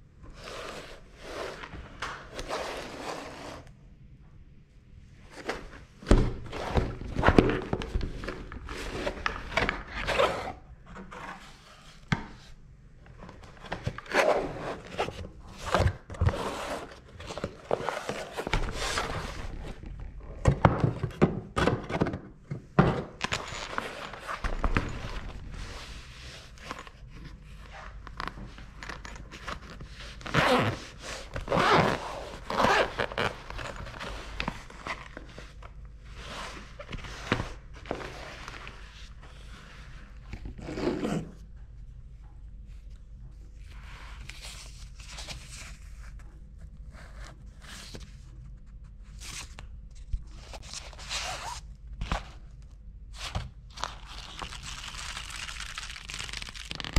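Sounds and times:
zipper pulled open: 0:30.2 - 0:34.2.

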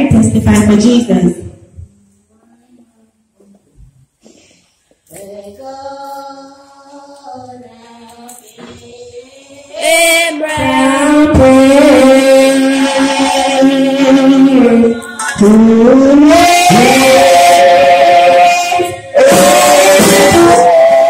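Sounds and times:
woman singing into microphone: 0:05.1 - 0:21.0.

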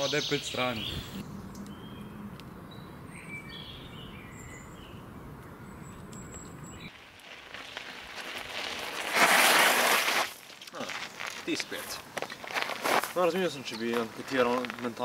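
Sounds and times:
faint outdoor background noise: 0:00.0 - 0:15.0.

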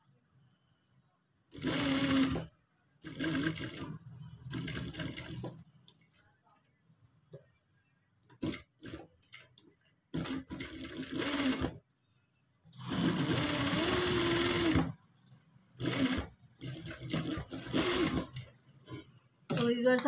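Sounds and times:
sewing machine stitching: 0:01.5 - 0:05.6, 0:10.2 - 0:11.8, 0:12.8 - 0:15.0, 0:15.8 - 0:18.5.

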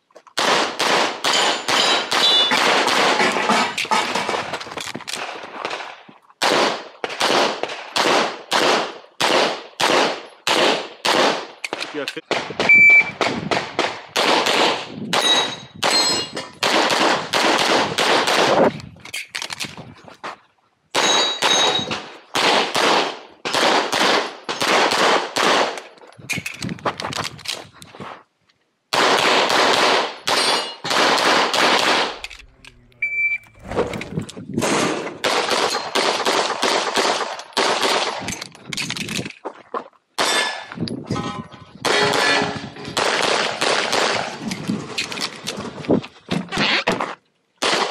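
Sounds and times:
rapid pistol shots: 0:00.4 - 0:03.4, 0:05.2 - 0:16.0, 0:16.6 - 0:18.6, 0:21.0 - 0:25.8, 0:28.9 - 0:32.2, 0:34.6 - 0:38.3, 0:43.0 - 0:44.4, 0:47.6 - 0:47.9
bullets ringing steel targets: 0:01.2 - 0:04.0, 0:15.1 - 0:16.8, 0:20.9 - 0:22.1, 0:30.2 - 0:31.0, 0:35.5 - 0:36.3, 0:40.2 - 0:43.1.

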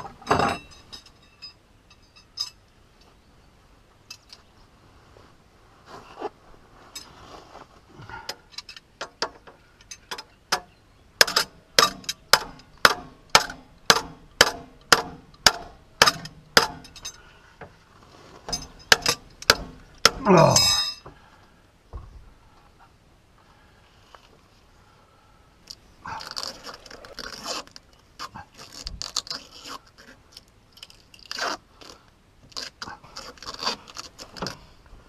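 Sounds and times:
sharp metallic tapping: 0:09.0 - 0:17.2, 0:18.5 - 0:21.1.

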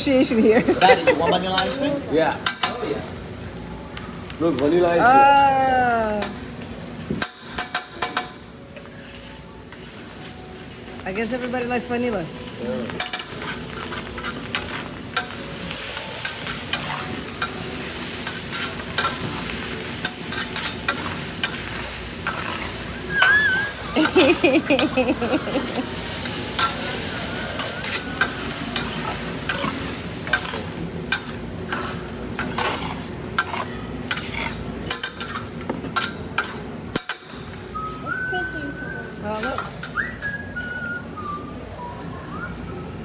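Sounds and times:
rice sizzling on griddle: 0:00.0 - 0:43.0
metal spatula scraping and tapping: 0:16.2 - 0:17.6, 0:18.2 - 0:19.4, 0:20.0 - 0:23.3, 0:26.6 - 0:26.8, 0:27.6 - 0:37.3.

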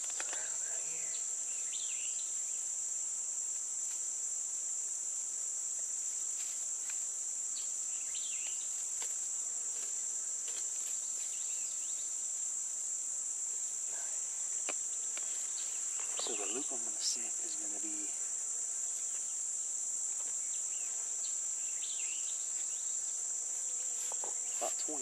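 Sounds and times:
insects shrilling: 0:00.0 - 0:25.0
faint bird chirps: 0:14.9 - 0:18.1.

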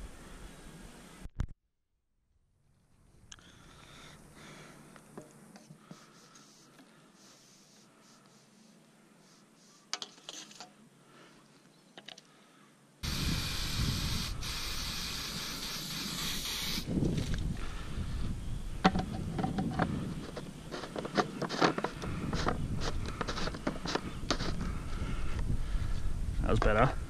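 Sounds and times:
aerosol can spraying: 0:05.9 - 0:09.8, 0:13.0 - 0:16.9
handling rustles: 0:19.0 - 0:24.6.

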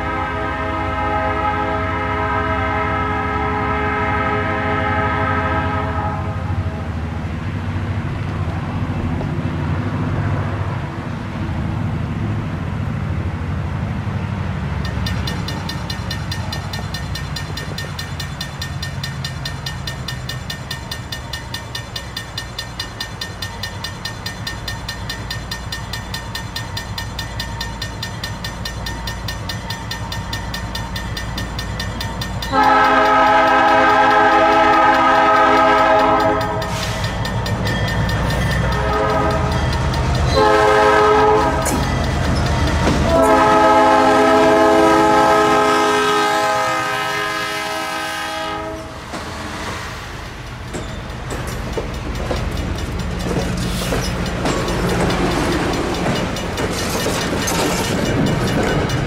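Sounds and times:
train air horn: 0:00.0 - 0:06.9, 0:32.5 - 0:37.0, 0:38.7 - 0:39.5, 0:40.3 - 0:41.7, 0:43.0 - 0:49.0
diesel locomotive engine rumbling: 0:00.0 - 0:59.0
crossing bell ringing: 0:14.7 - 0:49.0, 0:50.2 - 0:59.0.

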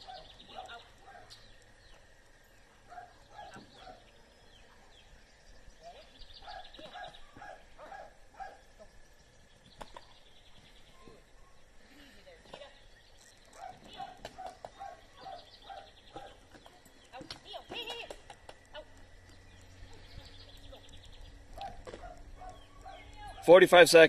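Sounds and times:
dog barking faintly: 0:02.9 - 0:04.9.

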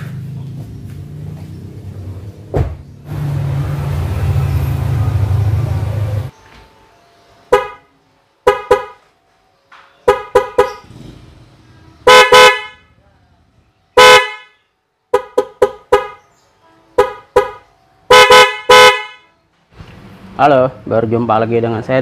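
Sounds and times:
car horn blasts: 0:07.5 - 0:09.0, 0:10.0 - 0:10.8, 0:12.0 - 0:13.0, 0:13.9 - 0:19.3.

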